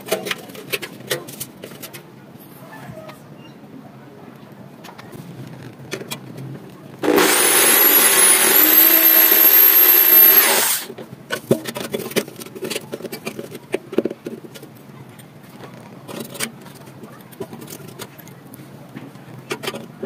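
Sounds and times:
power tool whine: 7.0 - 10.9.

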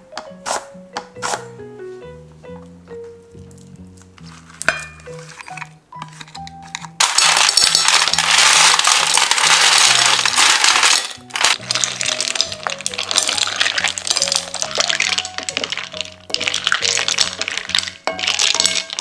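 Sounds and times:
ice cubes clattering into glass bowl: 7.0 - 19.0.

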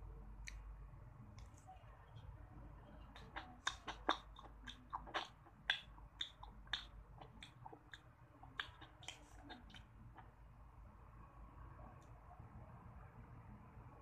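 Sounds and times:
chewing crunchy ice cream bar: 3.1 - 10.3.

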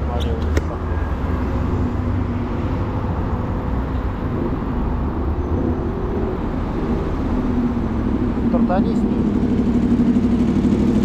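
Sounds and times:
road noise: 0.0 - 11.0
vehicles humming: 0.0 - 11.0.

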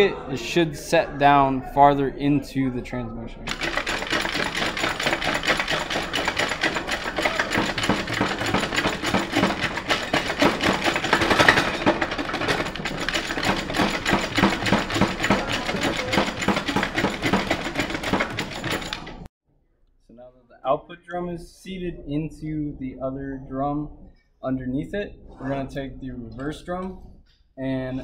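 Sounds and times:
metal drum rattling: 3.5 - 19.3.

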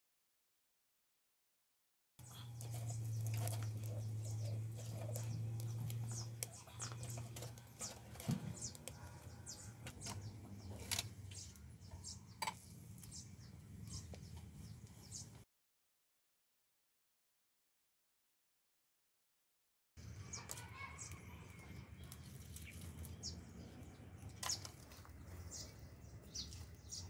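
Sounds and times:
low steady hum: 2.2 - 15.4
small birds chirping: 2.2 - 15.4, 20.0 - 27.0.

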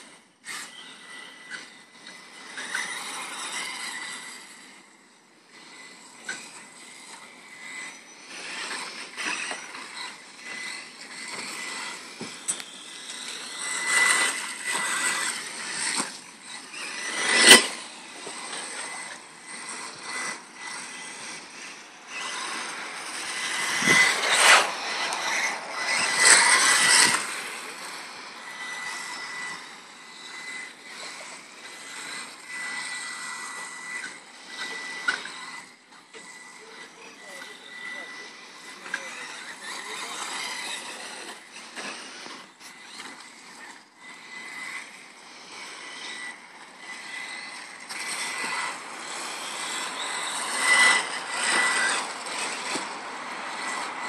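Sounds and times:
rc car motor and gear whine: 0.0 - 54.0.

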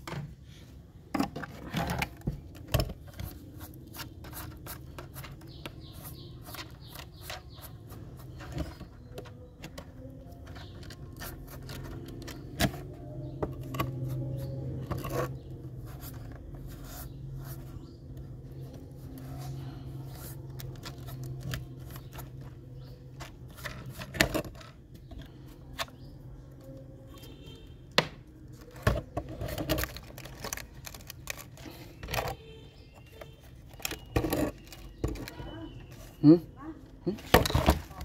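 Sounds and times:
plastic toy parts clicking: 28.8 - 32.4.

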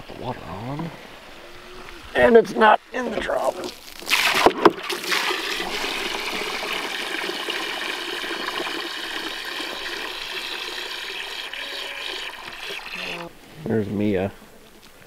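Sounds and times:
hose water splashing into trough: 3.3 - 13.3.

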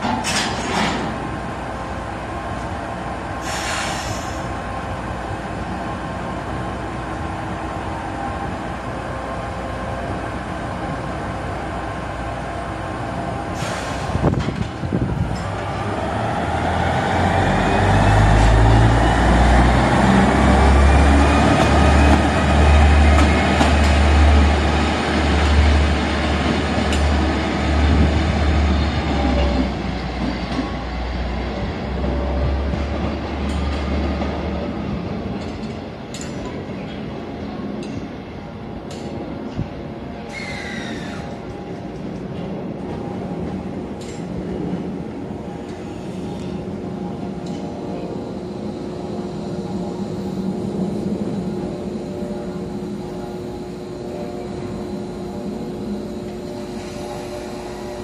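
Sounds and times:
diesel locomotive engine: 0.0 - 58.0
air hisses: 3.4 - 4.5.

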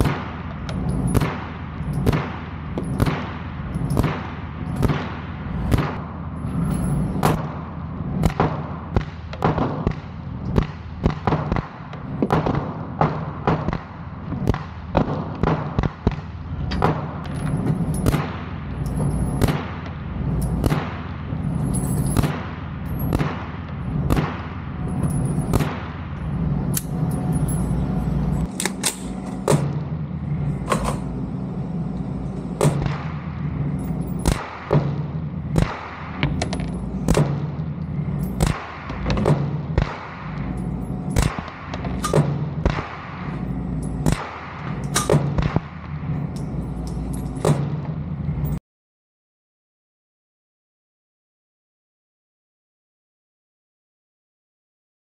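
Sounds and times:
suppressed carbine shots: 34.1 - 37.6.

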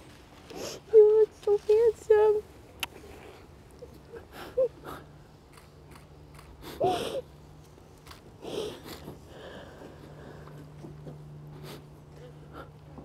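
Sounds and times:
person crying and sobbing: 3.8 - 5.1, 6.8 - 7.3.

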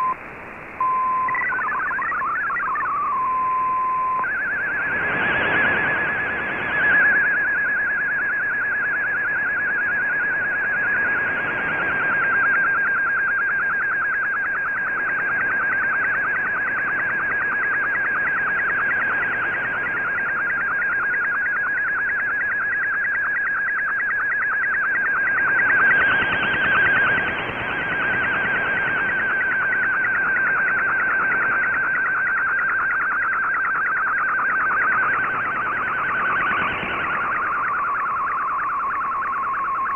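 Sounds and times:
whistling data tone with ticks: 0.0 - 0.2, 0.8 - 39.9
radio hiss: 0.0 - 7.5.

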